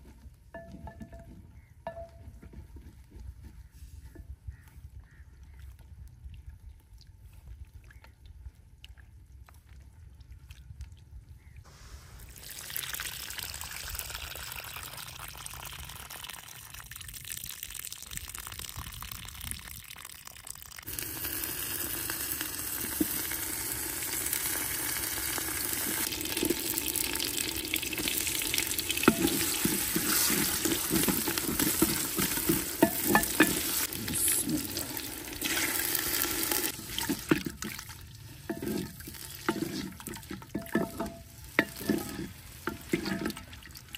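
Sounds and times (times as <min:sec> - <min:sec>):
food sizzling and bubbling: 0:11.7 - 0:43.9
ladle knocking against pot: 0:29.0 - 0:33.8, 0:40.5 - 0:43.4.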